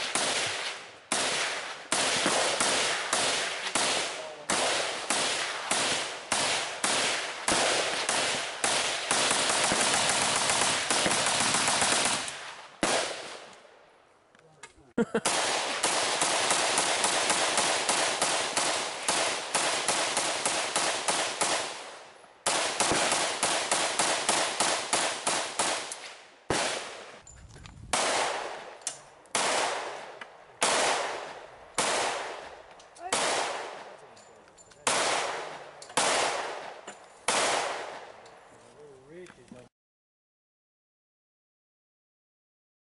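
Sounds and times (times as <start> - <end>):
rifle rapid fire: 0.0 - 13.5, 15.2 - 27.1, 27.9 - 28.7, 29.3 - 33.9, 34.8 - 38.1.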